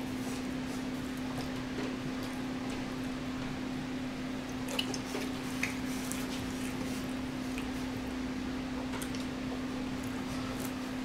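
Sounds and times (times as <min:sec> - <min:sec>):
eating mouth sounds and clicks: 0:08.9 - 0:09.4.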